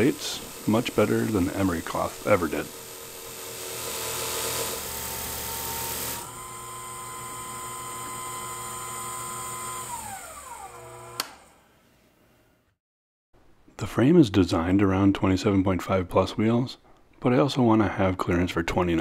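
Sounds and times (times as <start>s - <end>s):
sanding drum grinding steel: 0.0s - 6.3s
lathe motor humming: 0.0s - 11.6s
sharp click: 11.2s - 11.4s.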